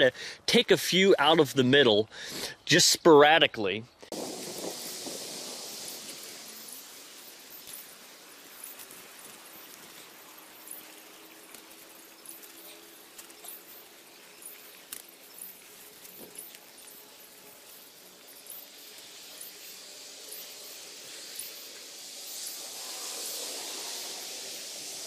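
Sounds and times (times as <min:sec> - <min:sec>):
small clicks: 0:11.4 - 0:17.0.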